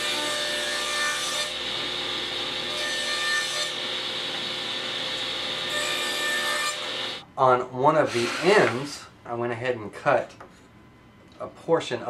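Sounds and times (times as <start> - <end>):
saw blade cutting wood: 0.0 - 7.2, 8.1 - 8.9
table saw running: 0.0 - 7.2, 8.1 - 8.9.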